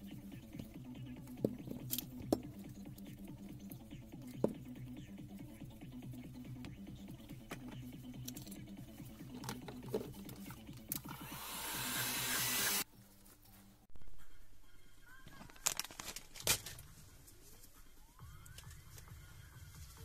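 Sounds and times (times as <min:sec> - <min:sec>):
electronic background music: 0:00.0 - 0:12.9, 0:16.8 - 0:20.0
workshop handling noises: 0:09.2 - 0:11.2.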